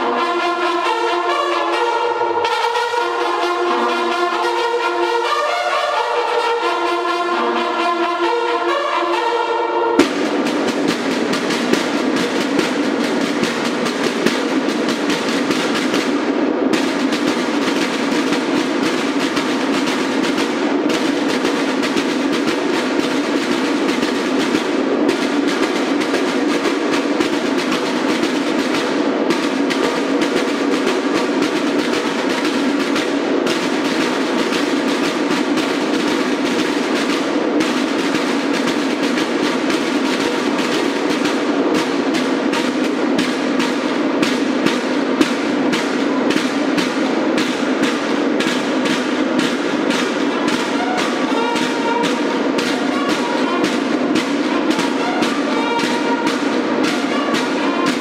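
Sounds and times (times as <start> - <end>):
bugles sounding a call: 0.0 - 10.0
snare drum rolls and beats: 0.0 - 58.0.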